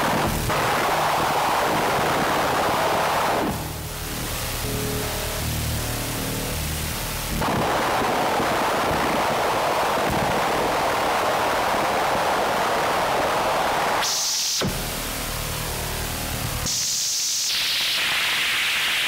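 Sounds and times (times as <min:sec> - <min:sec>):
low synth notes: 0:00.0 - 0:10.9, 0:14.6 - 0:16.8
synthesised noise wash: 0:00.0 - 0:19.0
hiss: 0:07.5 - 0:15.4, 0:16.6 - 0:19.0.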